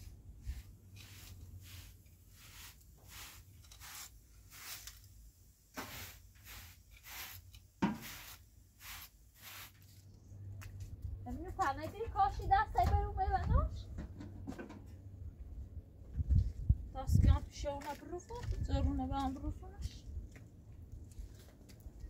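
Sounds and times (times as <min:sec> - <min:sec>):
hand broom sweeping: 0:00.0 - 0:10.1.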